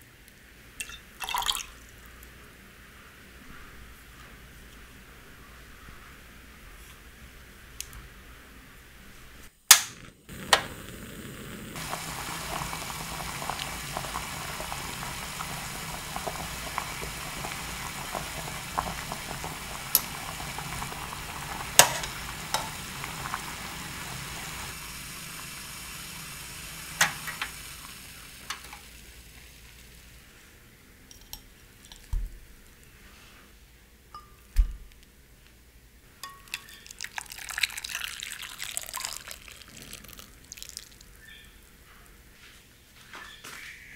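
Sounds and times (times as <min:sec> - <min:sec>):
syrup bubbling hiss: 0:09.7 - 0:33.4, 0:36.5 - 0:41.6
skimmer clinking against pot: 0:36.2 - 0:37.5.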